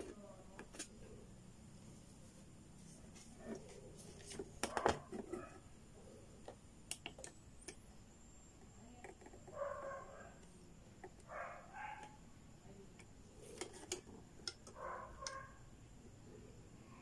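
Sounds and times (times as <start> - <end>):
test probes clicking on circuit board: 6.4 - 7.8.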